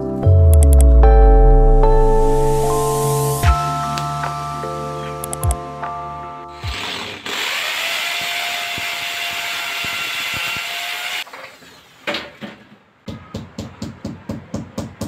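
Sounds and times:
electric drill boring into wall: 0:06.5 - 0:11.3.

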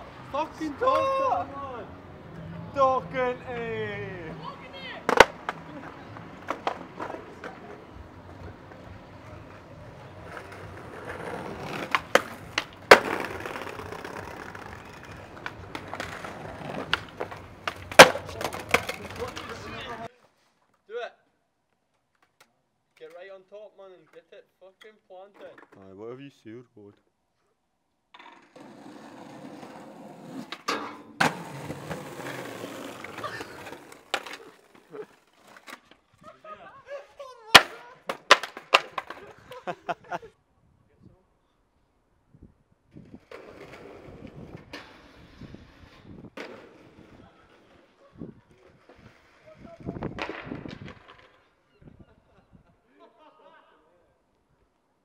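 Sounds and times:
skateboard clacks: 0:04.7 - 0:20.1, 0:30.4 - 0:36.0, 0:37.5 - 0:39.6, 0:48.5 - 0:51.4
skateboard rolling over brick: 0:05.0 - 0:20.1, 0:28.2 - 0:36.0, 0:37.5 - 0:39.4, 0:43.0 - 0:51.6.

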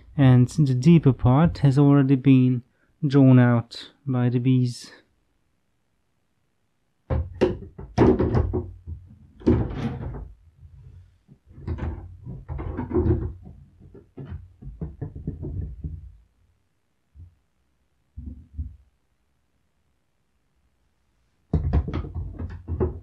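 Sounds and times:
wooden beehive frames knocking: 0:07.1 - 0:09.7.

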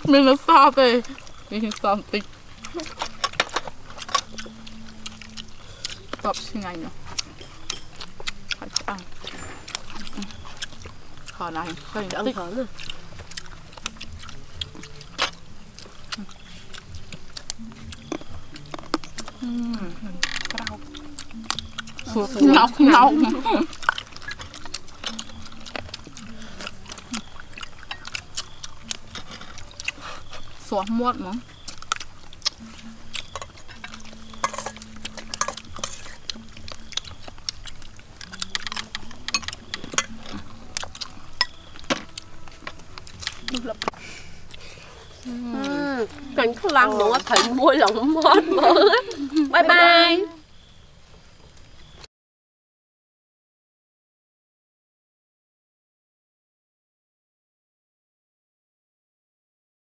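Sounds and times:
people chewing crunchy fruit: 0:00.0 - 0:52.0
spoons clinking against bowls: 0:00.2 - 0:13.0, 0:32.6 - 0:43.9, 0:46.4 - 0:49.1.

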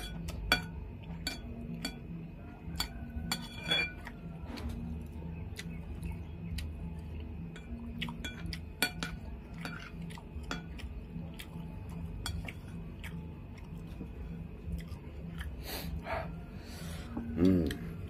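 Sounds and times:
faint low hum: 0:00.0 - 0:18.0
spoon scraping ceramic bowl: 0:02.8 - 0:04.2
chewing and lip-smacking: 0:03.9 - 0:16.4.

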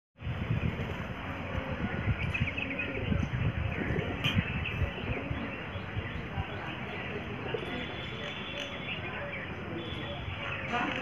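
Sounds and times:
wind noise on microphone: 0:00.2 - 0:08.3.

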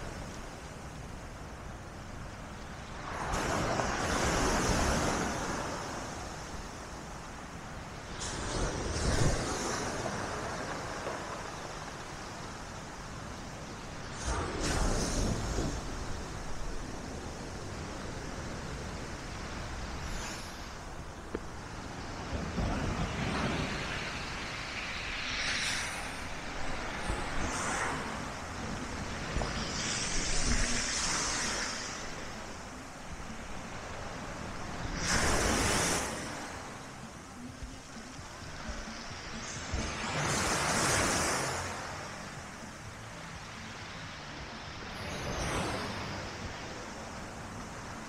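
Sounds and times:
waves breaking on shore: 0:00.0 - 0:48.0
wind rumbling on microphone: 0:00.0 - 0:48.0.

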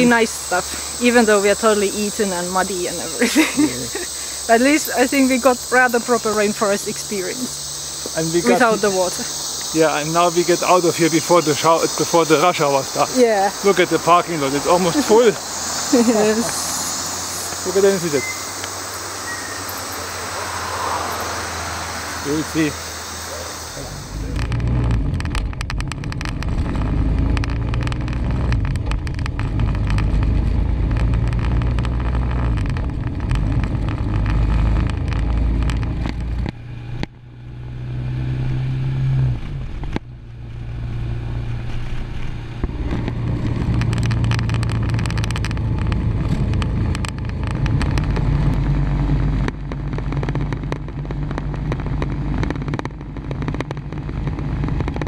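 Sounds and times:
low motorcycle engine drone: 0:00.0 - 0:55.0
road noise: 0:00.0 - 0:55.0
small clicks and rattles: 0:24.2 - 0:36.6, 0:42.9 - 0:55.0.

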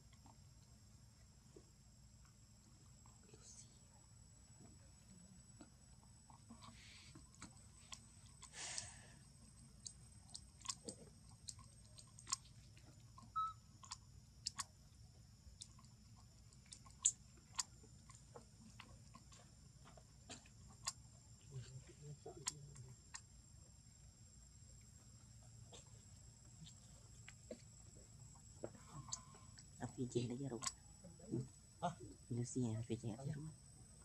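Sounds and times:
faint sharp clicks and crackles: 0:05.6 - 0:14.8.

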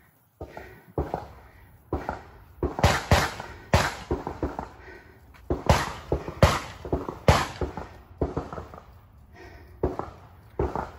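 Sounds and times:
pistol gunshots with echo: 0:01.9 - 0:04.7, 0:05.5 - 0:08.9.

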